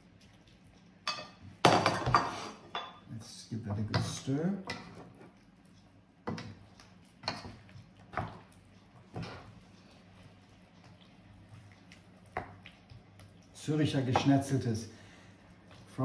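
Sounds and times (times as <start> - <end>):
low steady hum: 0.0 - 16.0
spoon stirring in frying pan: 3.8 - 14.6.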